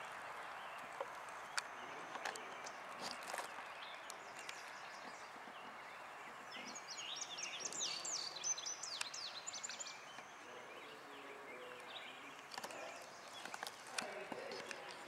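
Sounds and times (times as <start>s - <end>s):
outdoor background hiss: 0.0s - 15.0s
songbird singing: 0.0s - 15.0s
faint clicks: 0.7s - 5.2s.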